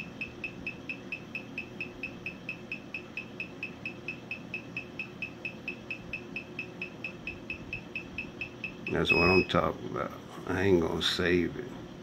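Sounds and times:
rapid high electronic beeps: 0.0 - 9.5
faint steady hum: 0.0 - 12.0.

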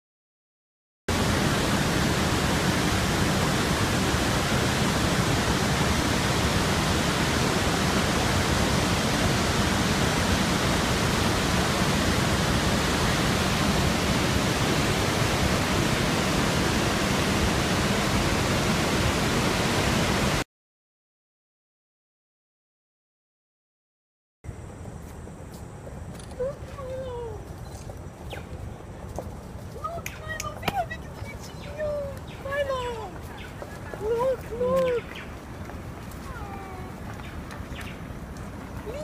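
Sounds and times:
waterfall rushing: 1.1 - 20.4.

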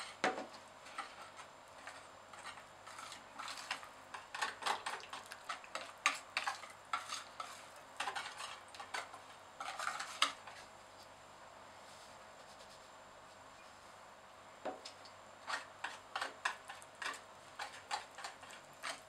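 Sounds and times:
whisk scraping a mixing bowl: 0.8 - 10.8, 15.4 - 19.0.

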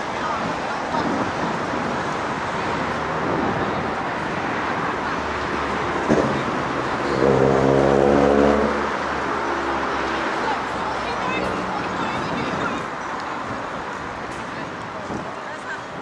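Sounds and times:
road traffic noise: 0.0 - 16.0
vehicle engine droning: 2.9 - 12.2.

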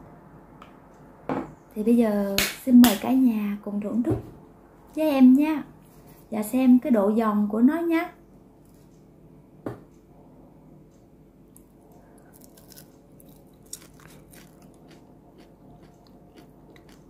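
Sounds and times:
crunching fries: 11.6 - 17.0.

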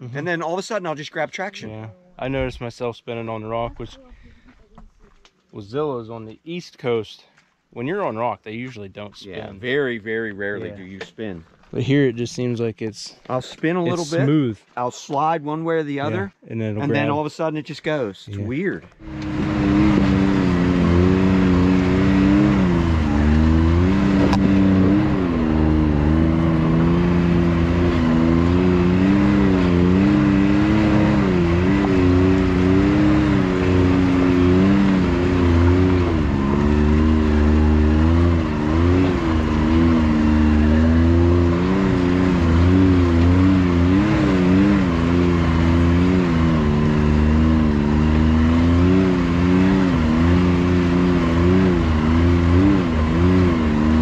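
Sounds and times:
engine revving at low speed: 19.0 - 54.0.

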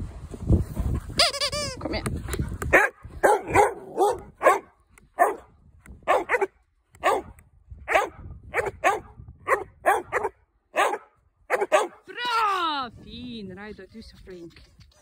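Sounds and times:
dog barking: 2.7 - 12.0.

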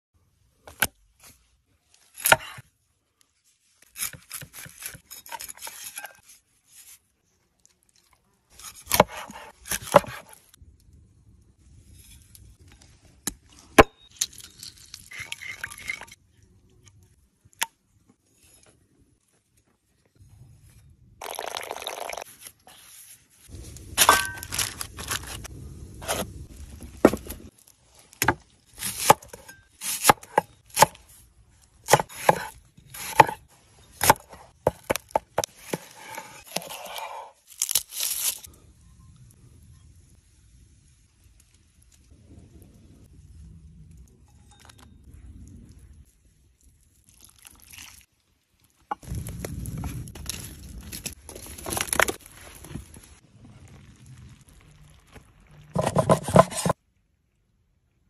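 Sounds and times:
scraping and tearing: 35.5 - 38.5.

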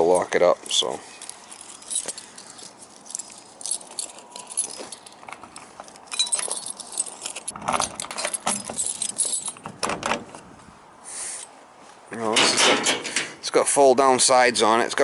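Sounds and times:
keys jangling on keyring: 1.2 - 9.7.

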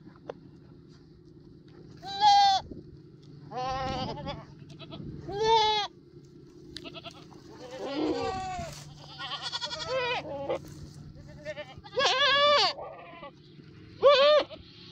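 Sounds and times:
goats bleating: 2.0 - 2.7, 3.5 - 6.0, 6.7 - 14.7.

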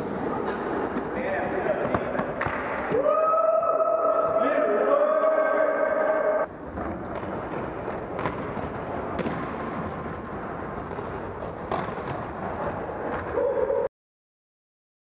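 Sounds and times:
noisy hall din: 0.0 - 13.9
soccer ball knocks: 7.9 - 9.8.

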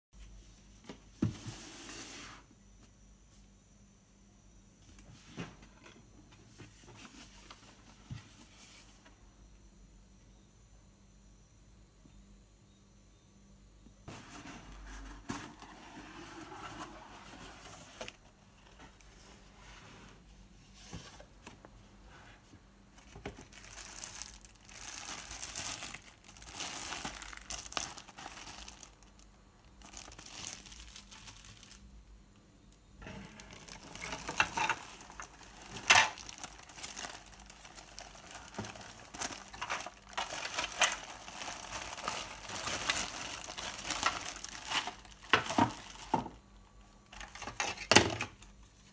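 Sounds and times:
plastic bags crinkling: 23.0 - 31.9, 33.0 - 48.5.

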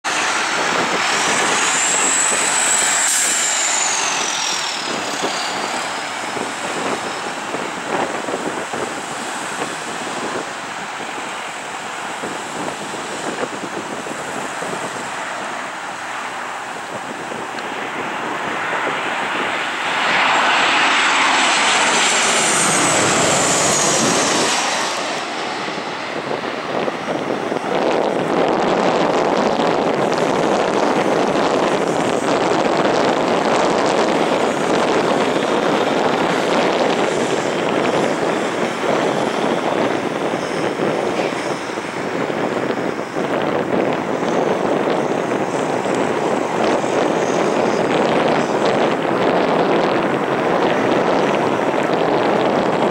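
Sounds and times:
jet engines passing overhead: 0.0 - 52.9.

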